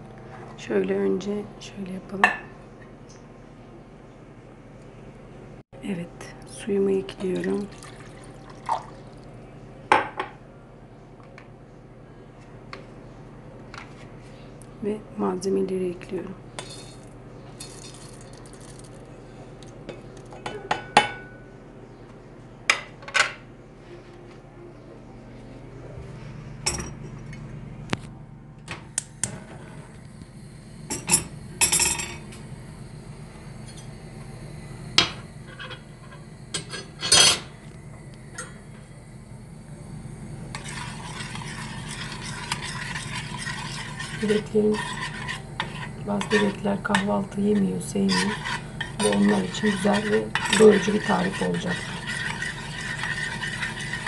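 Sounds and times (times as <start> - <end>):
steady low hum: 0.0 - 54.0
stirring scrape in pot: 16.6 - 18.9, 40.5 - 54.0
spoon and plate clinking on pot: 48.1 - 54.0.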